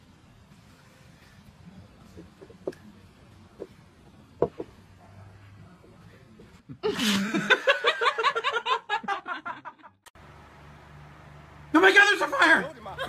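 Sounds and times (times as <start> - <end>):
faint knocks: 4.4 - 4.8
person laughing: 6.7 - 9.8.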